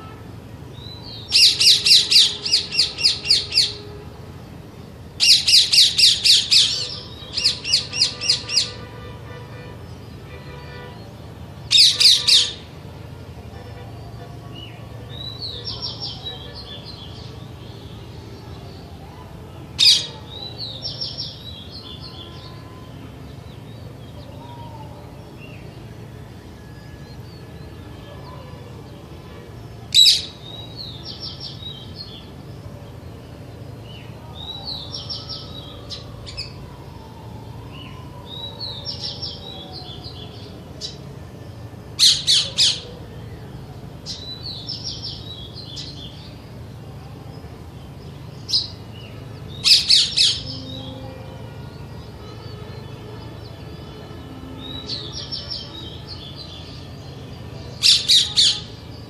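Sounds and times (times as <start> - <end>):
parakeets chattering: 11.7 - 12.6.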